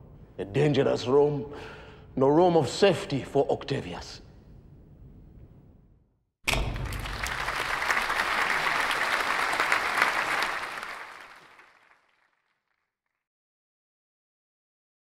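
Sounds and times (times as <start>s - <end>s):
audience applause: 6.6s - 12.4s.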